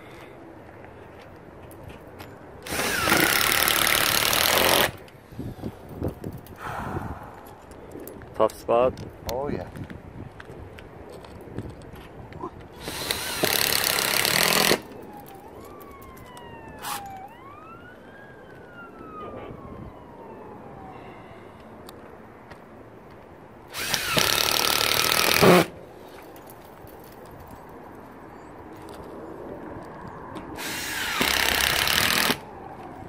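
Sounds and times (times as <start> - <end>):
impact driver running screws: 2.6 - 5.0, 12.8 - 14.8, 23.7 - 25.7, 30.6 - 32.4
distant siren wailing: 14.7 - 22.0, 28.2 - 33.0.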